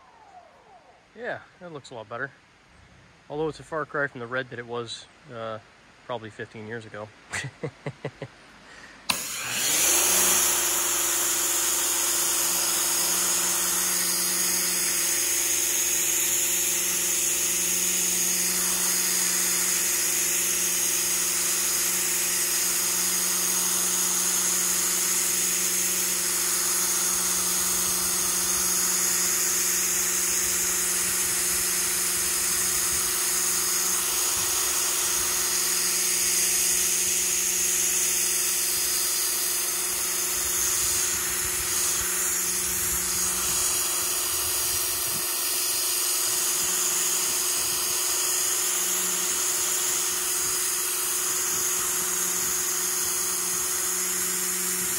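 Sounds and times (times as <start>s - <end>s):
pressure washer motor hum: 9.0s - 54.9s.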